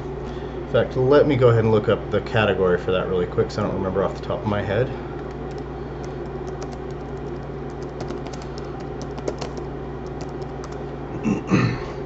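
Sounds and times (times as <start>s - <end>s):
steady low hum: 0.0s - 12.0s
keyboard key clicks: 6.2s - 10.8s.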